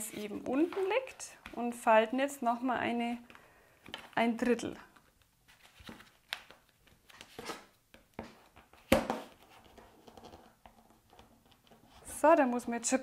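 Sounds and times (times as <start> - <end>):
paper rustling and creasing: 0.0 - 1.8, 3.3 - 7.8.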